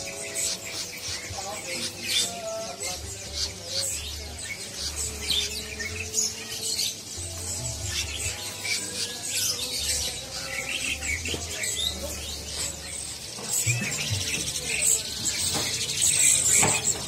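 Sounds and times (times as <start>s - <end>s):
songbirds chirping and singing: 0.0s - 17.0s.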